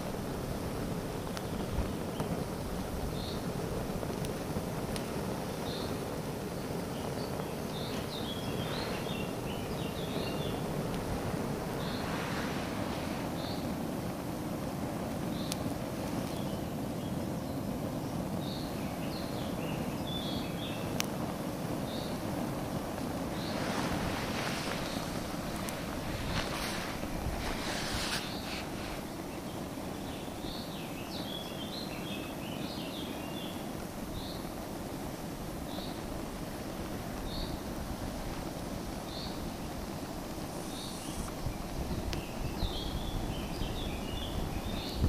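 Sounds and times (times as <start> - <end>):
wind buffeting microphone: 0.0 - 17.4, 18.0 - 30.6, 33.8 - 45.0
bird chirping and twittering: 6.6 - 10.9, 40.5 - 45.0.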